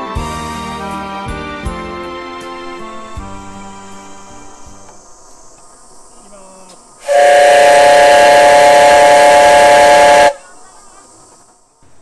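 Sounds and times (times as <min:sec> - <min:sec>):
steam whistle blast: 0:07.0 - 0:10.4.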